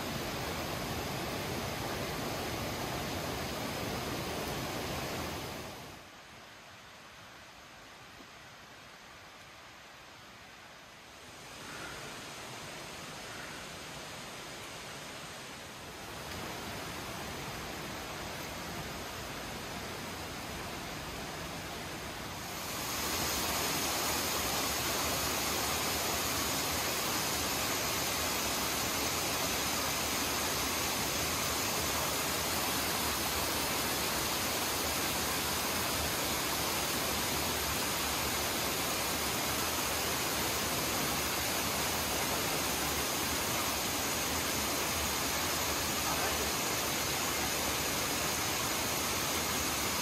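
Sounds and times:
steady rushing noise: 0:10.8 - 0:50.0.

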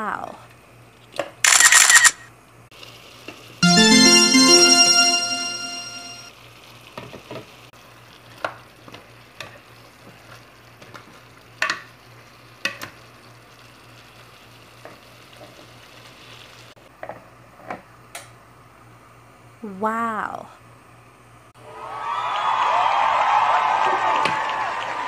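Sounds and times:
sauce sizzling in a pot: 0:07.8 - 0:16.7.

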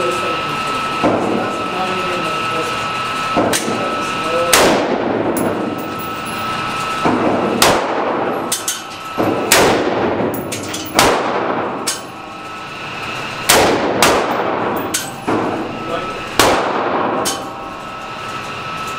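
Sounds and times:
rifle shots ringing: 0:07.2 - 0:08.4, 0:09.2 - 0:12.1, 0:13.5 - 0:15.6, 0:16.3 - 0:17.6.

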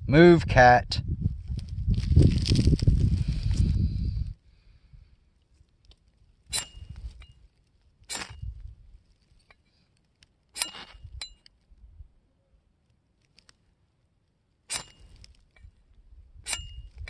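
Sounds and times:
machete scraping ferro rod: 0:06.4 - 0:08.6, 0:10.5 - 0:11.5, 0:14.6 - 0:15.7, 0:16.4 - 0:17.0
thin ring from blade: 0:06.5 - 0:07.4, 0:10.6 - 0:11.5, 0:14.7 - 0:15.7, 0:16.4 - 0:17.0.

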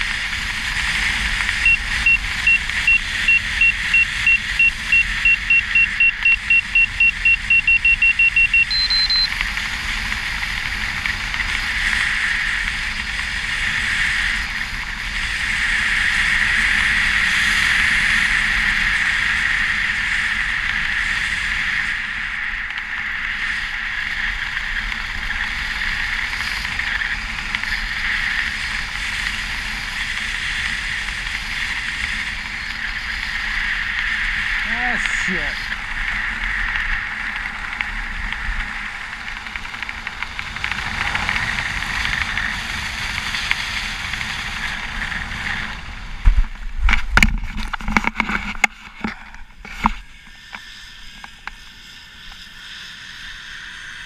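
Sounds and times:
altimeter beeping: 0:01.6 - 0:09.4
wind rushing over microphone: 0:09.3 - 0:50.0.

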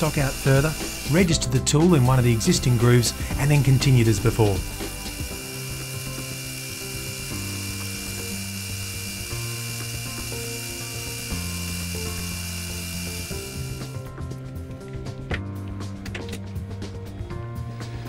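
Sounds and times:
metal lathe running: 0:00.0 - 0:14.1
soft background music: 0:00.0 - 0:18.0.

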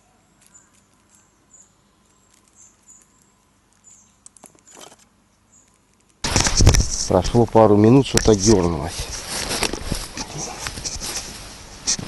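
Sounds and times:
insects chirping: 0:00.0 - 0:06.0
small clicks and rustles: 0:02.0 - 0:07.1.

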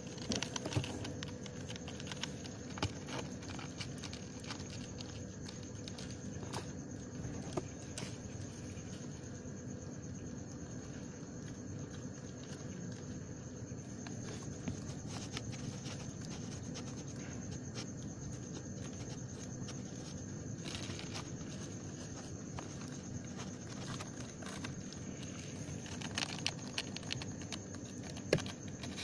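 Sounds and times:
kitten claws scratching cardboard: 0:14.1 - 0:20.0.

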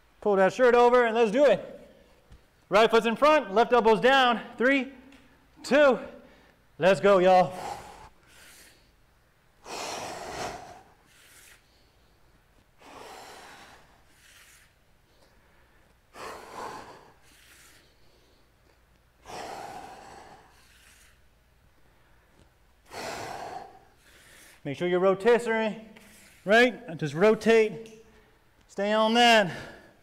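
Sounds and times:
man breathing heavily: 0:06.2 - 0:06.8, 0:07.4 - 0:24.7, 0:29.3 - 0:30.0.

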